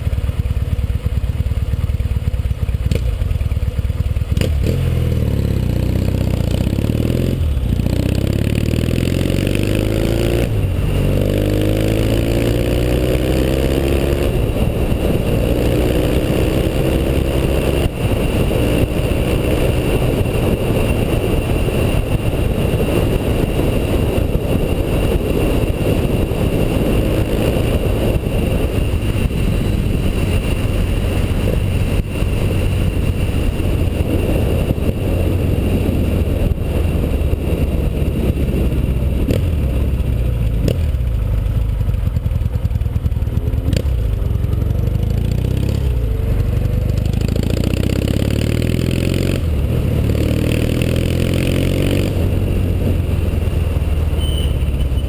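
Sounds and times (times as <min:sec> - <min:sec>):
motorcycle engine accelerating: 0:00.0 - 0:55.0
wind rush on microphone: 0:04.5 - 0:55.0.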